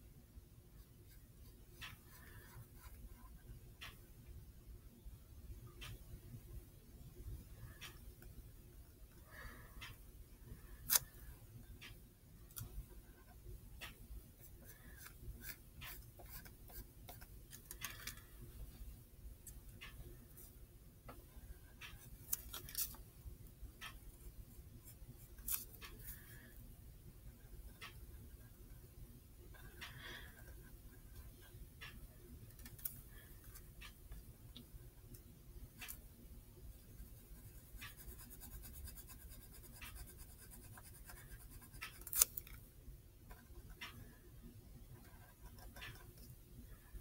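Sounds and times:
faint low room hum: 0.0s - 47.0s
pencil scratching on paper: 14.4s - 17.3s, 36.9s - 42.2s.

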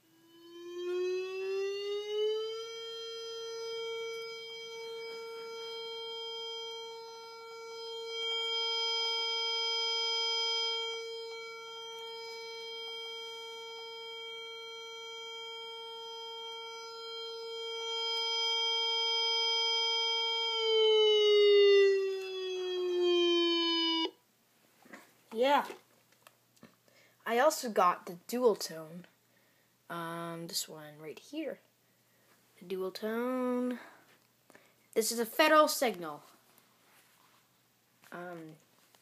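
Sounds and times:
warning siren tone from speaker: 0.0s - 24.2s.

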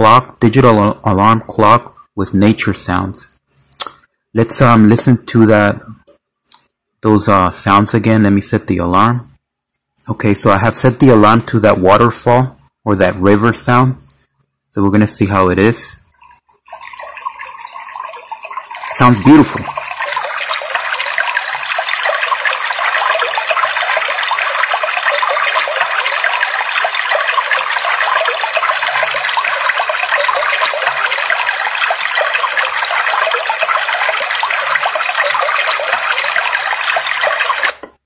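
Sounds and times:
rushing water alarm sound: 16.7s - 37.8s.

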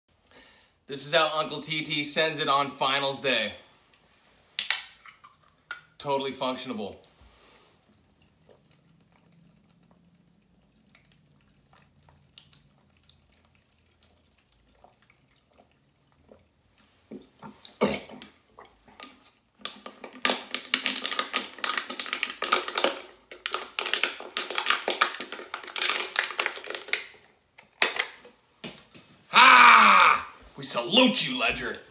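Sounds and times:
faint gulping: 7.8s - 19.4s
aluminium can crunching: 17.6s - 28.3s.

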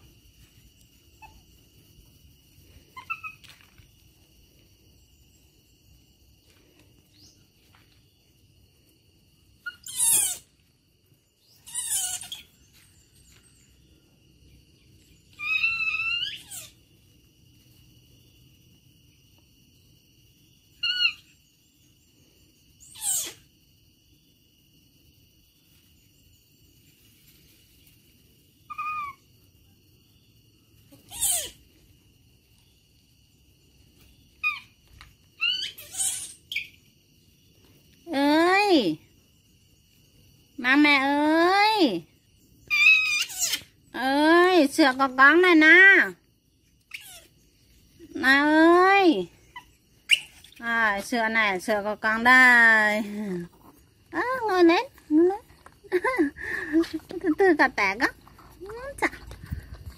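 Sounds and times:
baby monkey squealing: 3.0s - 3.5s, 9.6s - 10.5s, 11.5s - 12.6s, 15.3s - 16.8s, 20.8s - 21.4s, 22.8s - 23.5s, 28.7s - 29.2s, 31.0s - 31.6s, 34.4s - 34.8s, 35.4s - 36.8s, 42.7s - 43.8s, 46.9s - 47.3s, 49.5s - 50.6s.

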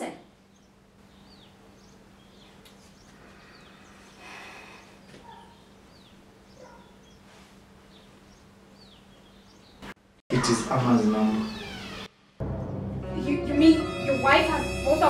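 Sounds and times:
faint bird chirps: 0.3s - 7.3s.

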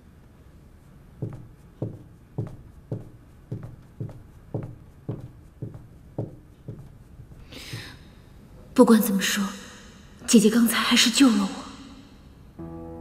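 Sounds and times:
footsteps of people walking: 0.6s - 8.1s.

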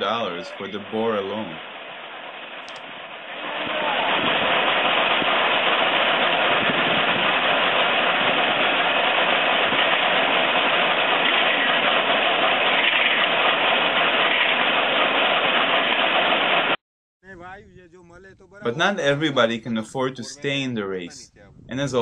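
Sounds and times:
drilling rig engine running: 0.0s - 16.8s.

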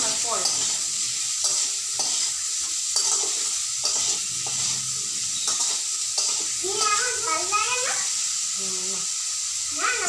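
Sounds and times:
spatula scraping a pan: 0.0s - 7.2s
vegetables sizzling in hot oil: 0.0s - 10.0s.

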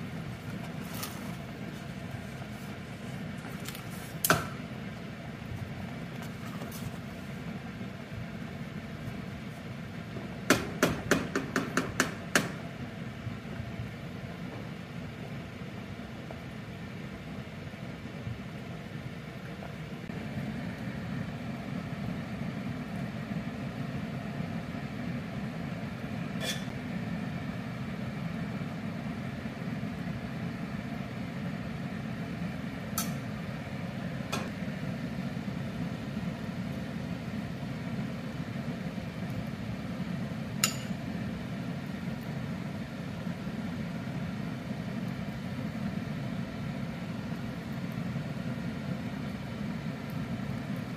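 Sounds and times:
steady low hum: 0.0s - 50.9s.

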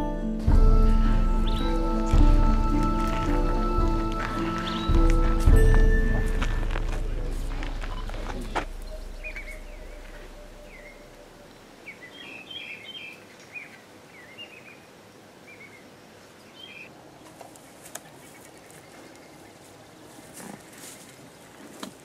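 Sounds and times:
small birds chirping: 1.3s - 2.3s, 4.3s - 5.6s, 7.1s - 21.8s.

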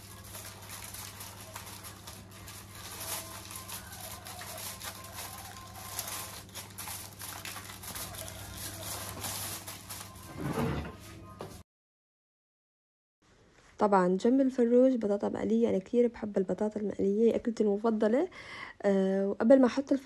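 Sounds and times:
aluminium foil crinkling: 0.0s - 10.4s.

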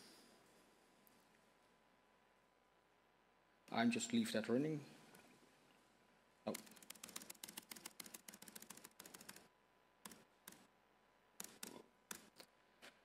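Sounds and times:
computer keys clicking: 6.5s - 10.7s, 11.4s - 12.5s.

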